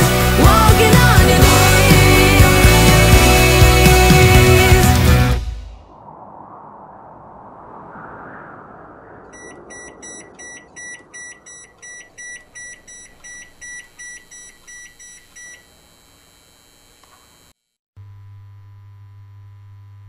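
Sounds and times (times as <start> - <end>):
noise wash: 5.4 - 13.6
short electronic beeps: 9.4 - 15.7.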